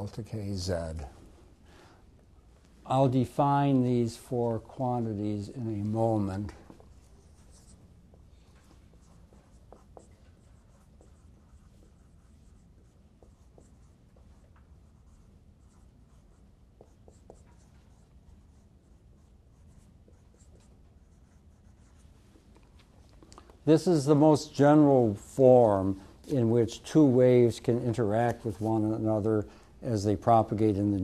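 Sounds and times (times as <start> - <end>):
low room hum: 0.0 - 31.0
marker scratching on whiteboard: 6.2 - 22.6.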